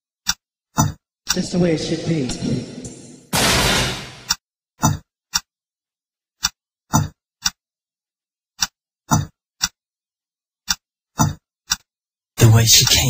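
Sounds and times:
sharp dry percussion hits: 2.8 - 4.3.

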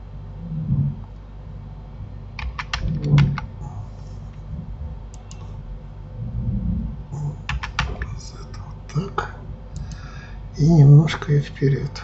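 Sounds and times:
keyboard keystrokes: 2.4 - 3.5, 7.5 - 8.1
dull low bump: 4.4 - 8.1.

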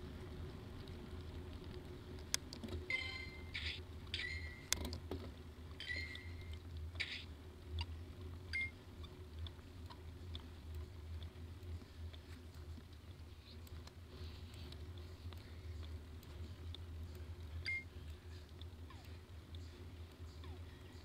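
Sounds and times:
wind and road noise: 0.0 - 2.9
high squeaky chirps: 2.9 - 4.7, 5.8 - 7.2.

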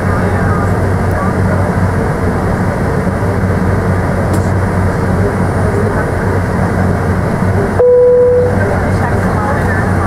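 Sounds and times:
jet engines idling in cabin: 0.0 - 10.0
short steady tone: 7.8 - 8.7.

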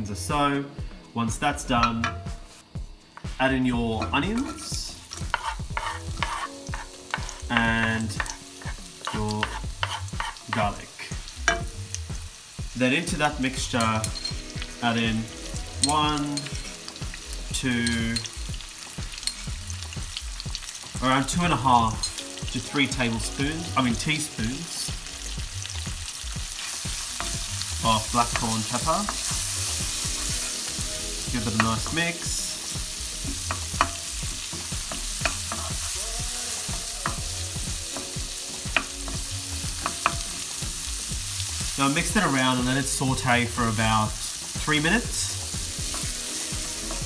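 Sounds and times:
onion and garlic sizzling in oil: 0.1 - 47.0
wooden spatula scraping pan: 4.0 - 10.7.

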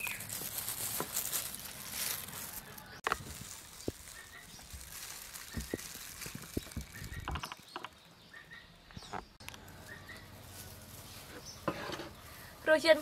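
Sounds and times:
gloved hands handling food: 0.0 - 8.1
faint bird chirps: 3.8 - 10.4.

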